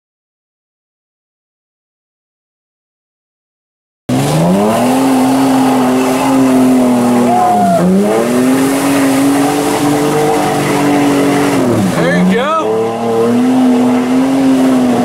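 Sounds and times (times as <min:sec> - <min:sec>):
engine revving hard: 0:04.1 - 0:15.0
wheels spinning in mud: 0:04.1 - 0:15.0.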